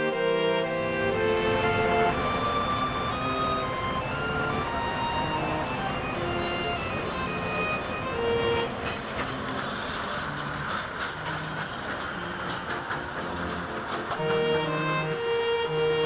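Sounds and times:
soft string music: 0:00.0 - 0:16.0
tram passing on rails: 0:00.0 - 0:16.0
wheel clatter and clicks: 0:08.6 - 0:14.7.

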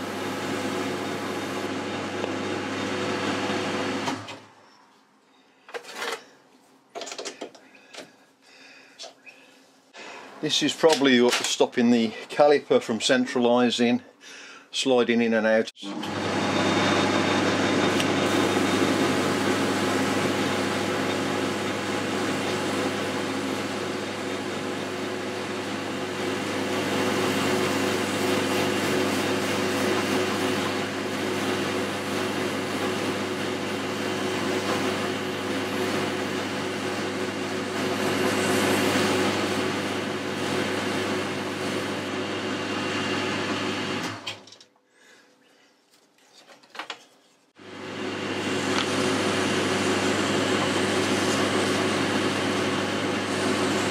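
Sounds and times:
lathe humming: 0:00.0 - 0:04.2, 0:47.6 - 0:53.9.

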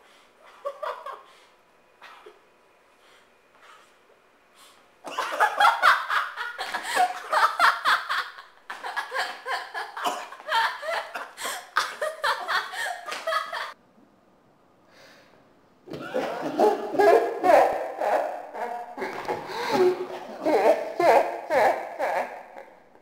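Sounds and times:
hard rapid laughter: 0:05.1 - 0:13.8, 0:16.0 - 0:22.8.

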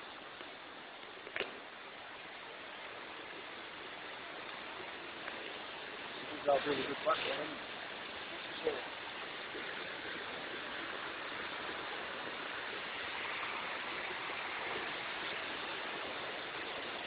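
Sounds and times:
floodwater rushing: 0:00.0 - 0:17.0.

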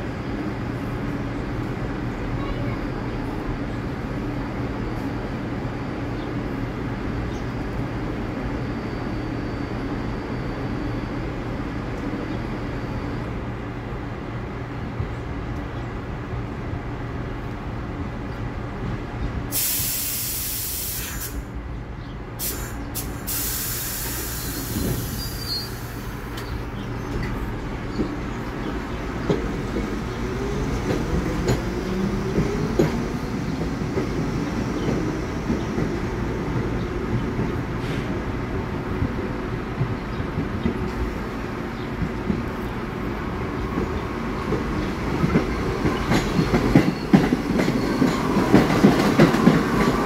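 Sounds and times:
subway train equipment humming: 0:00.0 - 0:50.0
air brakes hissing: 0:19.5 - 0:21.5, 0:22.4 - 0:26.6, 0:37.8 - 0:38.2.

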